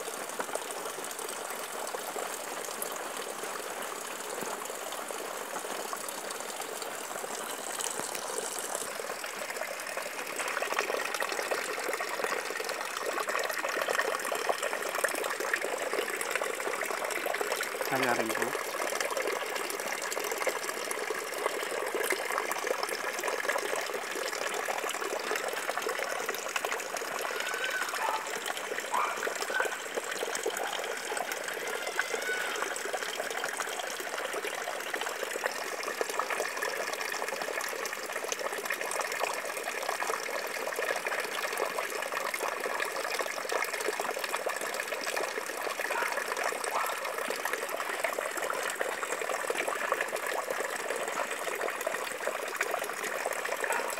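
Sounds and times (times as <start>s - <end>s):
water splashing and bubbling: 0.0s - 53.9s.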